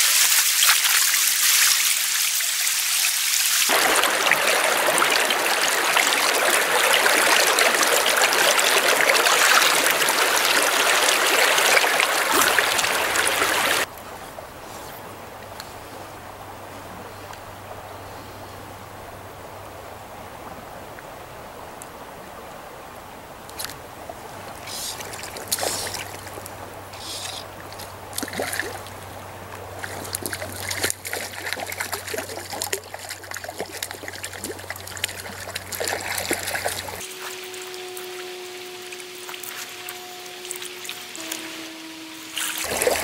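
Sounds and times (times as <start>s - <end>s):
water splashing and trickling: 0.0s - 18.3s, 19.0s - 43.0s
stream water running: 0.0s - 43.0s
low steady hum: 3.7s - 43.0s
music with held notes: 37.0s - 43.0s.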